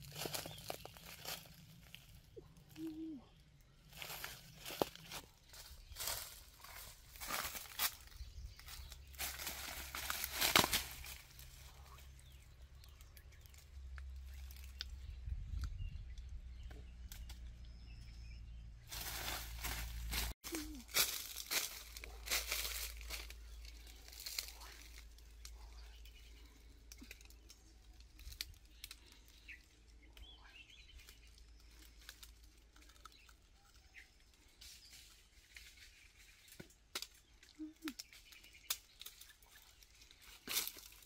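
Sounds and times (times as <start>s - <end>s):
dry leaves rustling: 0.0s - 3.2s, 3.8s - 14.8s, 18.8s - 29.8s, 30.9s - 41.0s
small twig snaps: 26.8s - 29.2s, 36.5s - 39.6s.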